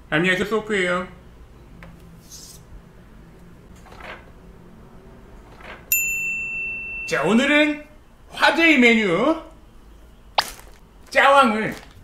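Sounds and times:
high bell-like ding: 5.9 - 7.8.

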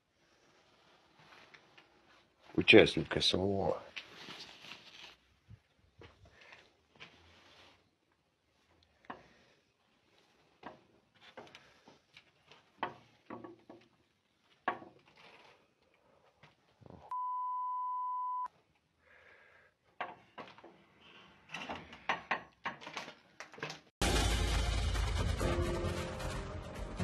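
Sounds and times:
faint knocks and clatter: 10.5 - 15.4
censor bleep: 17.1 - 18.5
loud music: 24.0 - 27.0.

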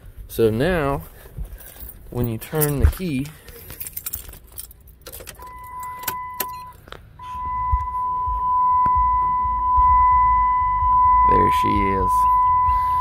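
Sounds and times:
keys jangling and clicking: 1.5 - 6.9
high electronic tone: 5.4 - 13.0
low hum: 5.4 - 13.0.

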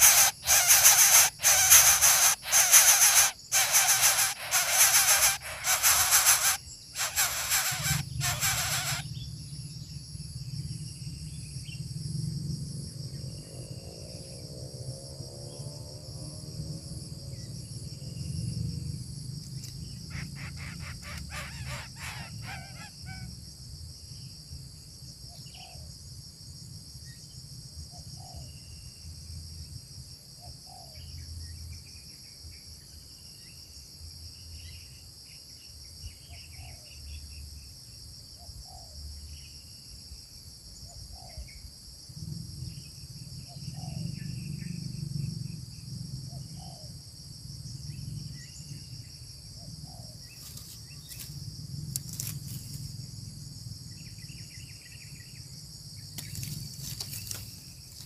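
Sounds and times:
bird chirps: 0.0 - 9.3, 19.6 - 23.3
insects trilling: 0.0 - 58.0.

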